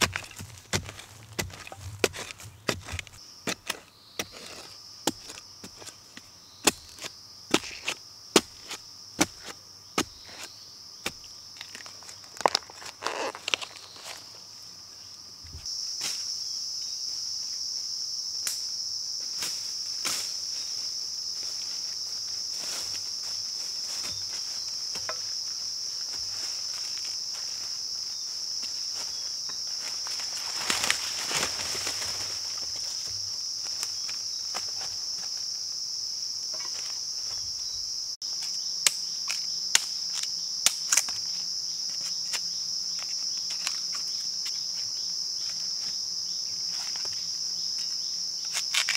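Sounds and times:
high-pitched insect chorus: 0.0s - 48.9s
machete cutting bamboo: 38.4s - 41.3s, 48.4s - 48.9s.

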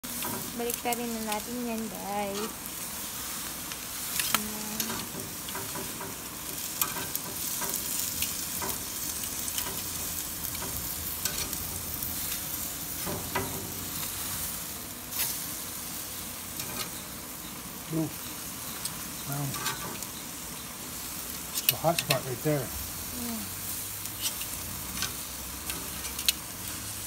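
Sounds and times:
chicken sizzling on grill: 0.0s - 27.0s.

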